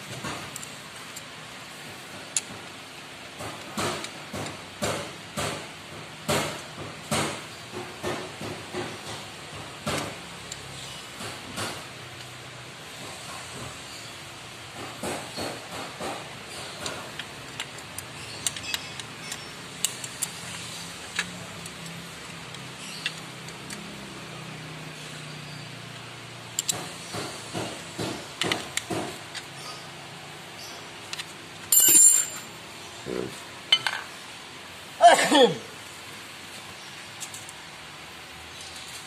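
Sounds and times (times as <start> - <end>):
wrench clicking on bolts: 16.6 - 23.9, 26.5 - 26.8
ringing metal clink: 31.7 - 32.5.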